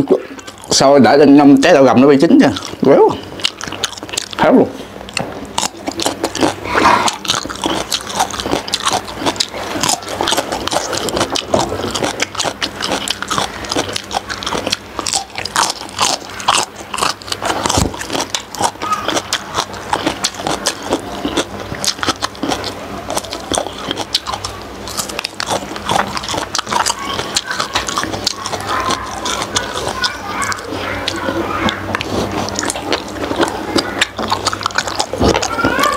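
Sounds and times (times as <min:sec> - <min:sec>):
person biting and chewing: 0:00.0 - 0:35.9
wet mouth clicks: 0:02.4 - 0:35.5.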